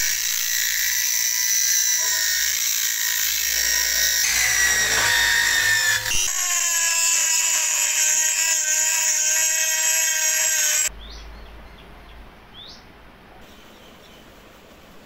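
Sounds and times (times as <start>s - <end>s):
drill grinding with high whine: 0.0s - 10.9s.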